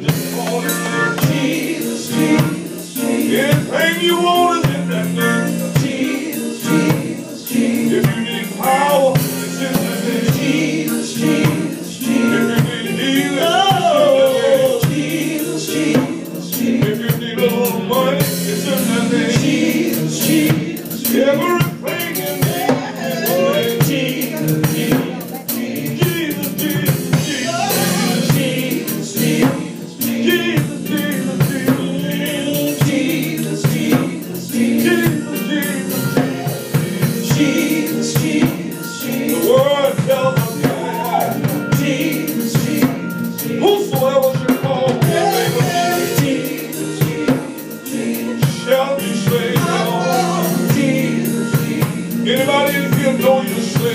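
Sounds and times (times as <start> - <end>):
drum kit beat: 0.0 - 53.9
singers singing gospel: 0.0 - 53.9.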